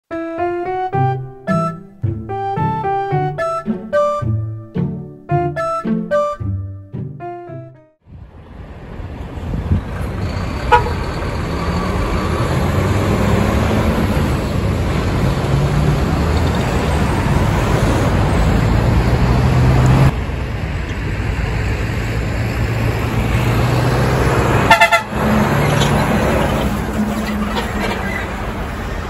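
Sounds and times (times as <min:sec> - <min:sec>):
diesel truck engines droning: 0:08.1 - 0:29.0
truck horn toot: 0:10.6 - 0:11.1, 0:24.4 - 0:28.2.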